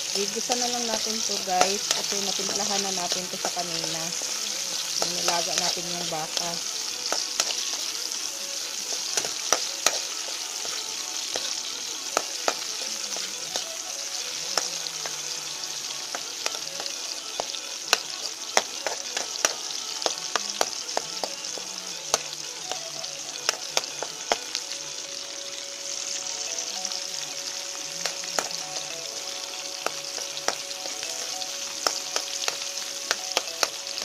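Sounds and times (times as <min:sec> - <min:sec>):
onion sizzling in hot oil: 0:00.0 - 0:34.0
metal spoon scraping a wok: 0:08.8 - 0:11.6, 0:15.8 - 0:21.6.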